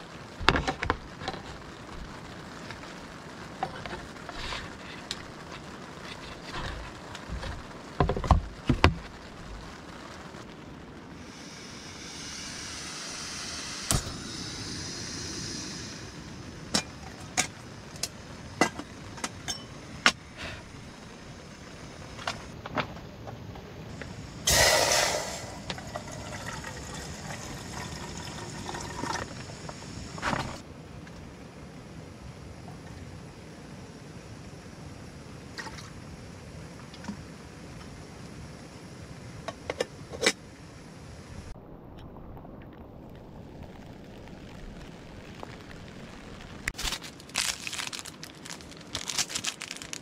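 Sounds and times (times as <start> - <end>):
rain on tent fabric: 0.0 - 40.7, 41.3 - 50.0
short loud rush: 24.5 - 25.7
water poured into kettle: 24.5 - 29.8.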